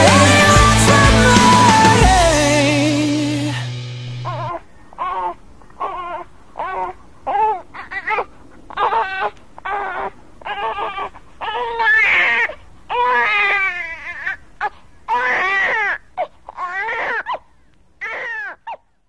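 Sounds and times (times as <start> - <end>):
child crying: 3.5 - 14.4.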